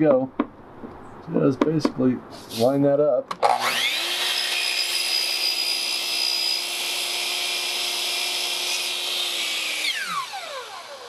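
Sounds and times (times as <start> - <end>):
miter saw cutting plywood: 3.4 - 11.0.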